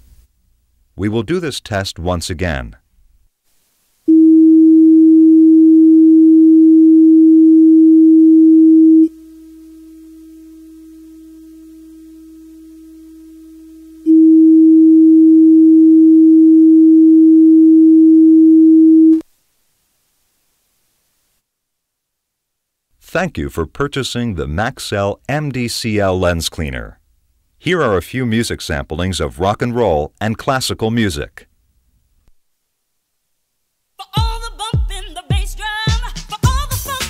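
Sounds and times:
steady low test tone: 4.1s - 19.2s.

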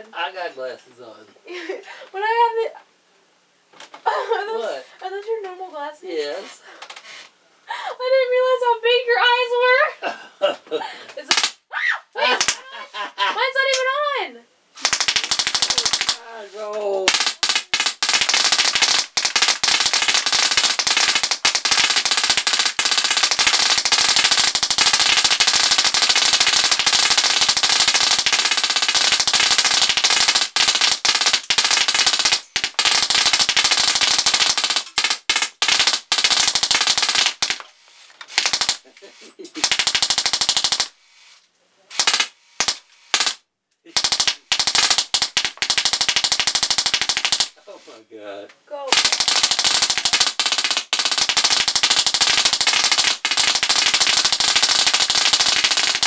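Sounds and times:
bbs shattering targets: 11.2s - 11.6s, 14.8s - 16.4s, 17.0s - 38.9s, 39.6s - 41.0s, 41.9s - 47.6s, 48.9s - 56.0s
bb gun firing rapid shots: 11.3s - 11.6s, 12.3s - 12.6s, 14.8s - 16.3s, 17.1s - 37.7s, 38.3s - 38.8s, 39.6s - 41.0s, 41.9s - 47.6s, 48.9s - 56.0s.

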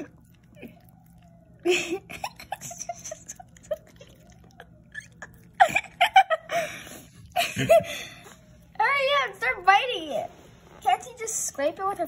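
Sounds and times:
puppy licking and smacking: 0.0s - 6.3s.

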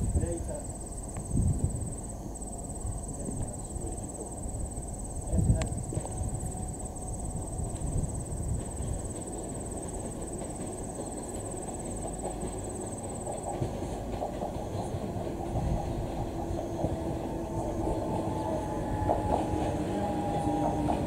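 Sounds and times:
train rumble and wheel clatter: 0.0s - 21.0s.

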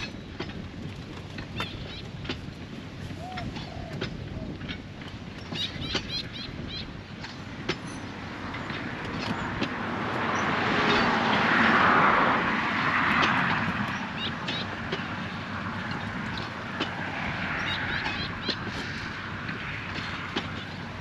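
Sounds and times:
car passing: 7.9s - 21.0s.

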